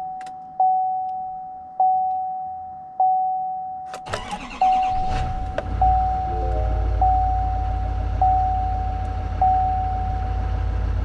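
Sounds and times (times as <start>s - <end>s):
dashboard warning chime: 0.0s - 10.6s
truck engine cranking and starting: 4.0s - 11.0s.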